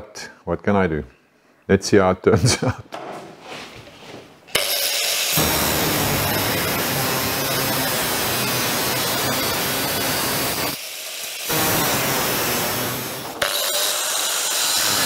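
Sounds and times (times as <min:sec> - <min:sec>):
angle grinder cutting steel: 0:04.5 - 0:15.0
angle grinder spinning free: 0:04.5 - 0:15.0.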